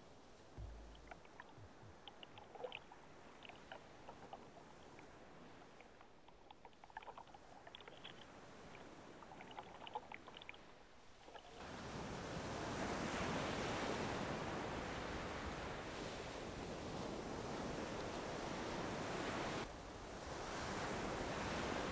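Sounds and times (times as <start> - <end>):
small waves breaking: 0.0 - 21.9
underwater bubbles fizzing: 0.6 - 11.6.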